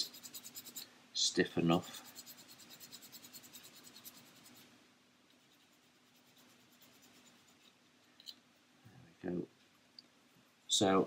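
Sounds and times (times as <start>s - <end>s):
sandpaper scrubbing plastic: 0.0s - 0.8s, 1.7s - 4.7s, 5.4s - 7.7s.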